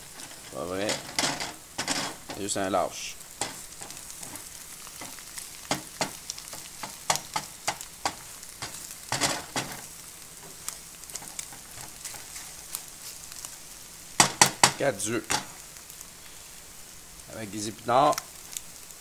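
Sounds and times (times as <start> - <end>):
utensil scraping a pan: 0.0 - 2.6, 3.3 - 13.4
eggs sizzling in a frying pan: 0.0 - 19.0.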